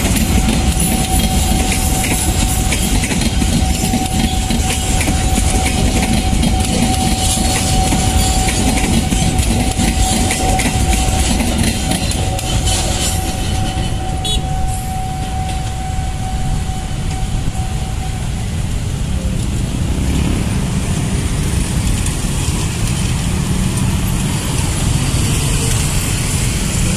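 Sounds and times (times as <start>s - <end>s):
steady high tone: 0.0s - 20.0s
train coaches rolling on rails: 0.0s - 26.9s.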